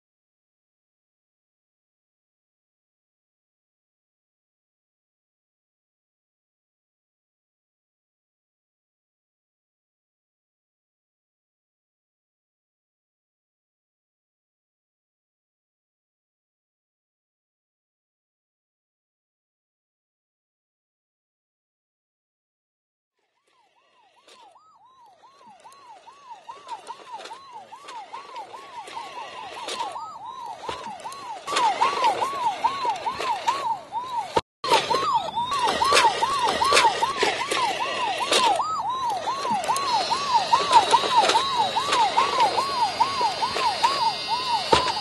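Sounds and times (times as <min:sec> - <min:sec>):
toy fire truck siren wailing: 0:23.2 - 0:45.0.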